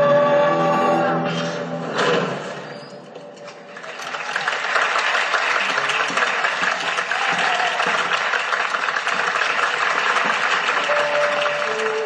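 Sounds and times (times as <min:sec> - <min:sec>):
large crowd applauding: 0:03.5 - 0:12.0.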